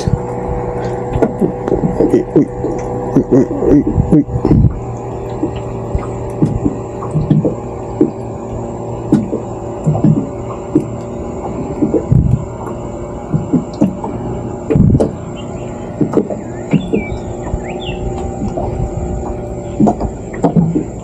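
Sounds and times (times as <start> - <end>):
low mechanical hum: 0.0 - 21.0
dull thumps: 13.3 - 15.2.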